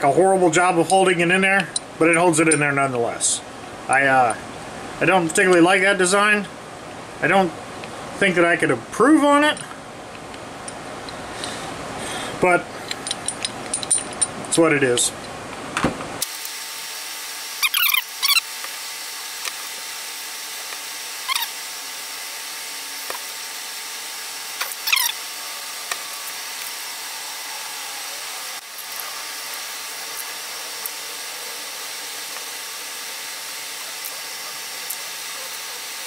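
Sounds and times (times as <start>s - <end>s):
steel vise parts squeaking: 17.6s - 18.4s, 21.3s - 21.6s, 24.7s - 25.2s
steady hiss: 18.4s - 36.0s.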